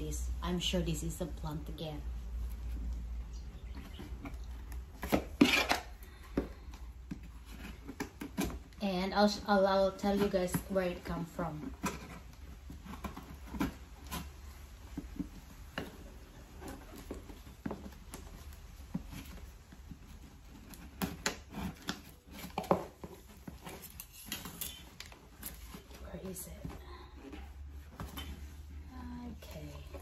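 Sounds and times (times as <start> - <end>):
cardboard box scraping and rustling: 3.5 - 6.0.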